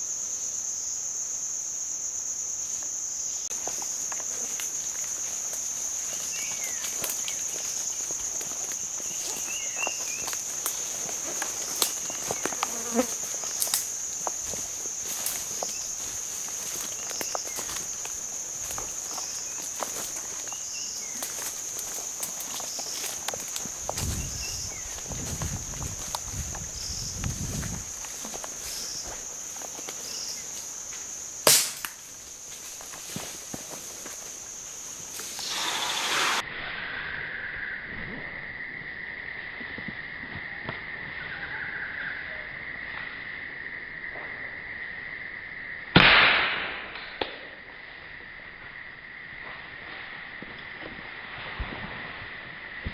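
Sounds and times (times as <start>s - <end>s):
insects droning: 0.0s - 52.9s
footsteps on twigs and dry leaves: 3.5s - 36.4s.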